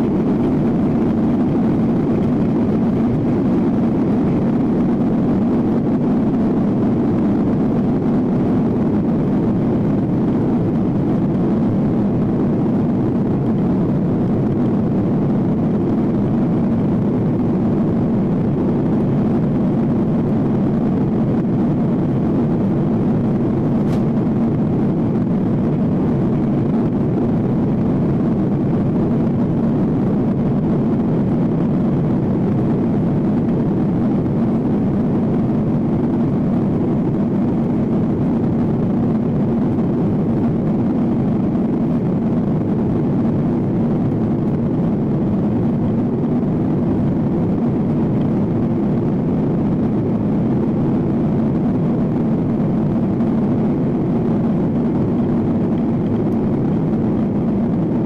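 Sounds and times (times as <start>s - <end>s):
airplane cabin engine rush: 0.0s - 58.0s.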